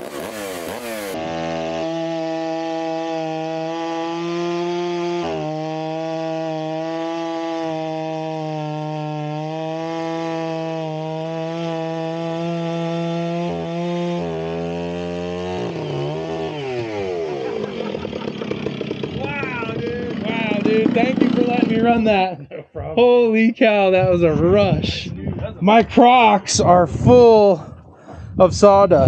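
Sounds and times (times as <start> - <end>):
electric chainsaw cutting log: 0.0 - 22.3.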